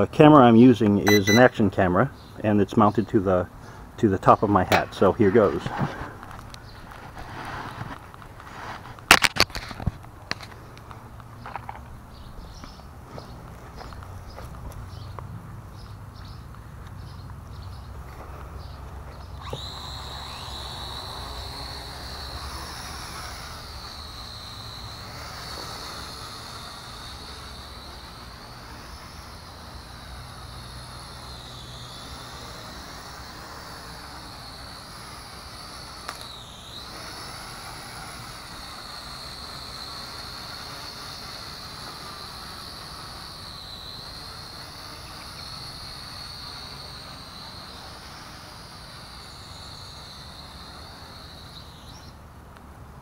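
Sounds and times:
toy drone propellers whining: 1.0 - 1.5, 17.8 - 52.2.

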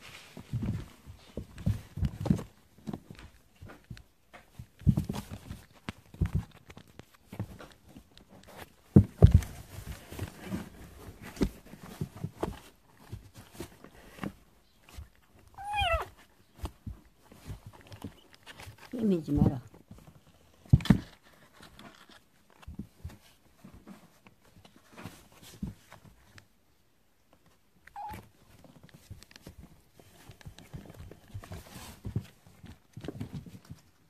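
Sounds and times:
kittens scuffling and thumping: 0.0 - 34.0
kitten meow: 15.6 - 16.1, 27.9 - 28.2.

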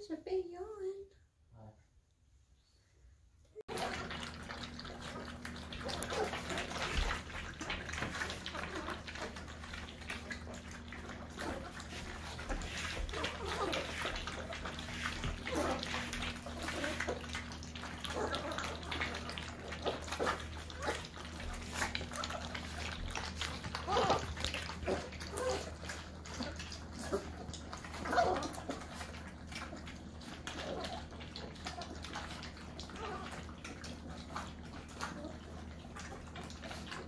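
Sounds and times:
puppies lapping milk: 3.6 - 37.0
puppy whimpering: 5.8 - 10.1, 11.2 - 34.0.

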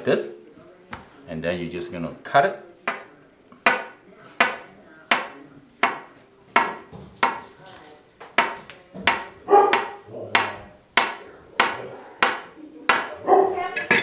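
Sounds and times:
cleaver chopping on stone countertop: 2.8 - 7.5, 8.3 - 13.2.

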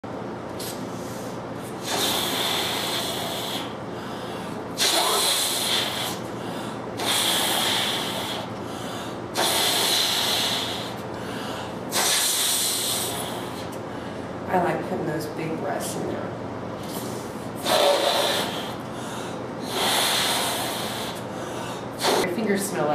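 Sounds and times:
breaths blown into balloon: 0.6 - 3.8, 4.8 - 6.3, 7.0 - 8.5, 9.4 - 11.0, 11.9 - 13.8, 16.8 - 18.9, 19.6 - 21.2, 22.0 - 22.3
quiet inhales: 0.6 - 14.4, 16.8 - 22.3.

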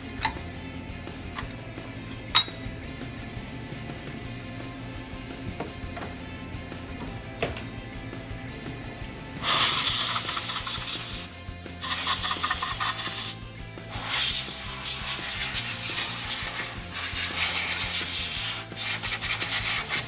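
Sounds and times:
compressed air blow gun hissing: 9.4 - 20.0.

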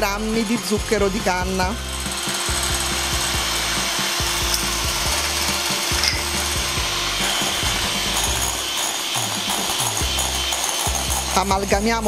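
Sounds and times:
electric hand mixer whisking: 0.0 - 12.0.

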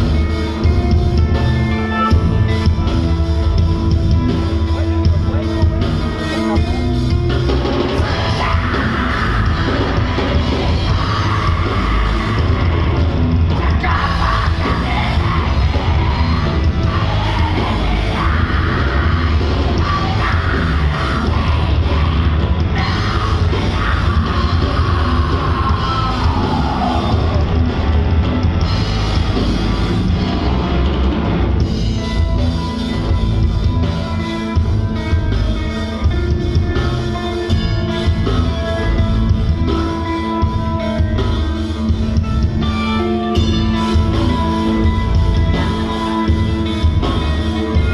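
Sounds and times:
heavy metal band playing: 0.0 - 47.9
singer's vocals: 8.0 - 27.7.

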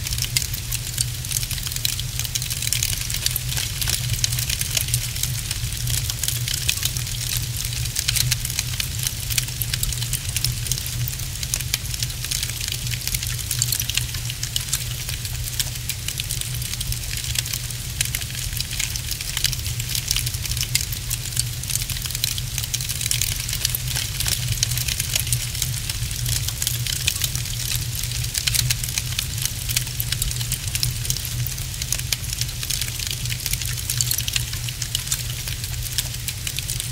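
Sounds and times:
low fire rumble: 0.0 - 36.9
wood fire crackling: 0.0 - 36.9.

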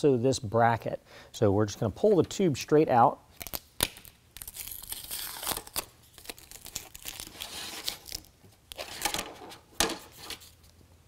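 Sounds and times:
plastic crinkling and scraping: 4.4 - 10.6.

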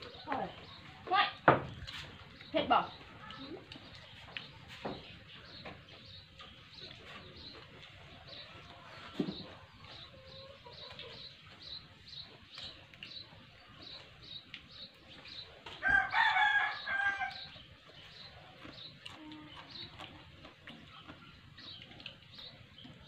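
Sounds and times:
rooster crowing: 15.8 - 17.5.

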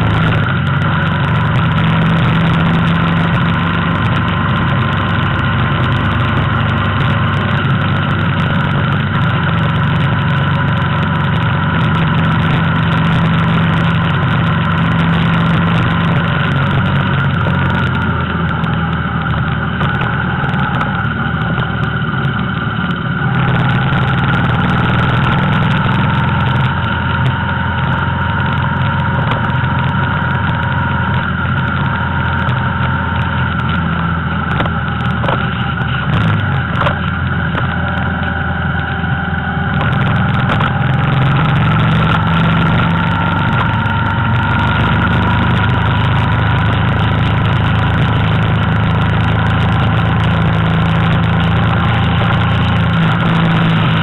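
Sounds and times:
road noise: 0.0 - 54.0
vehicle engine running: 0.0 - 54.0.

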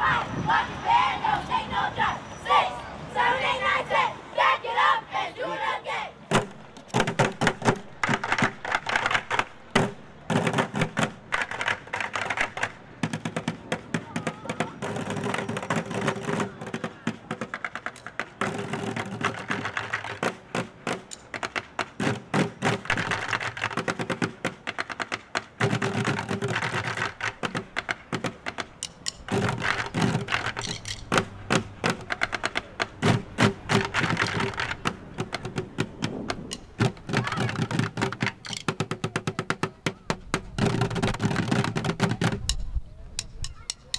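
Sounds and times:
drumsticks on plastic buckets: 6.3 - 43.9.

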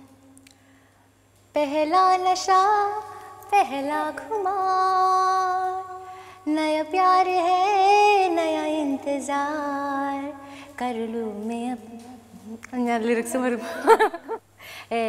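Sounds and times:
woman singing unaccompanied: 1.5 - 14.0.

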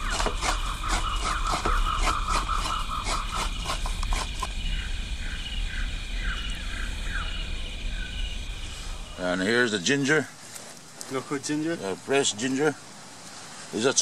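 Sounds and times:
coconut scraped over grater: 0.0 - 4.5
birds chirping: 0.0 - 14.0.

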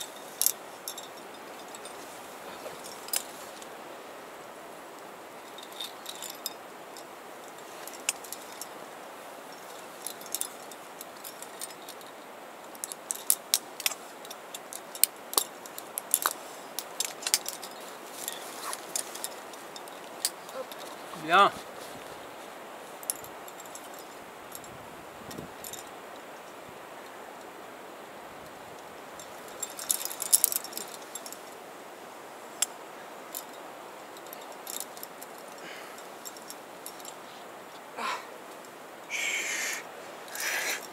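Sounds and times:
metal carabiners clinking: 0.0 - 3.7, 5.4 - 6.7, 7.4 - 8.8, 9.5 - 22.0, 22.9 - 24.7, 29.1 - 31.6, 32.5 - 40.9
steady faint hiss: 0.0 - 40.9.

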